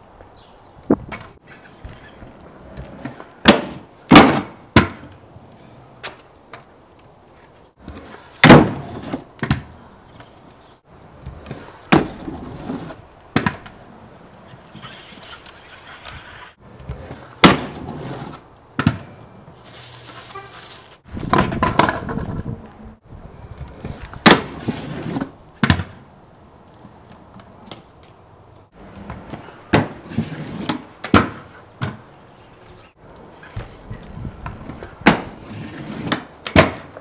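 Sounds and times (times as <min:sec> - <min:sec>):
scooter rolling on concrete: 0:00.4 - 0:37.0
scooter banging on wooden box: 0:03.0 - 0:05.1, 0:07.9 - 0:09.7, 0:13.3 - 0:13.8, 0:21.2 - 0:22.6, 0:25.6 - 0:26.0, 0:29.1 - 0:30.0, 0:30.6 - 0:32.1, 0:34.5 - 0:35.4, 0:36.0 - 0:37.0.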